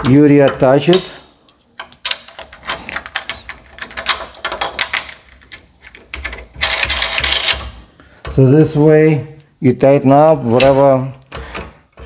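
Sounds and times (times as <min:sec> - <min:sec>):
metal parts clicking and knocking: 0:00.0 - 0:08.5.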